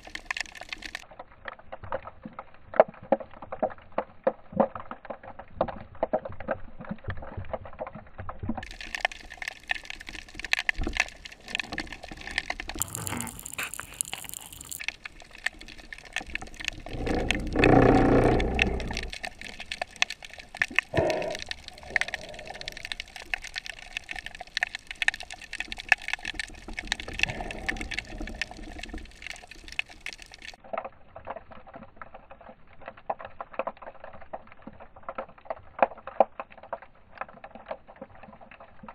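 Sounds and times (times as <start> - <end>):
underwater crackling and clicking: 0.0 - 38.9
rush of water: 8.6 - 30.6.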